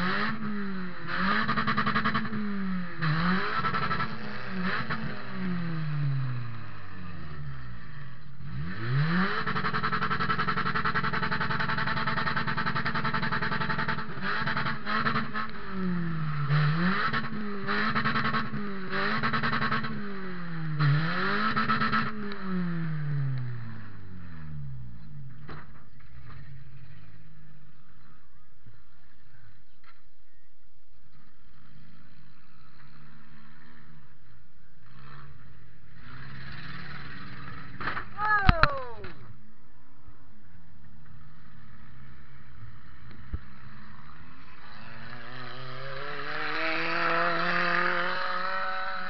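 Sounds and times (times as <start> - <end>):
car engine revving hard: 0.0 - 24.4, 45.0 - 49.0.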